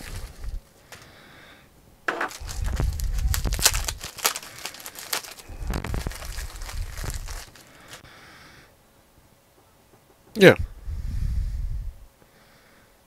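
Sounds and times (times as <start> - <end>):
plastic bag crinkling: 0.0 - 1.0, 2.1 - 8.1.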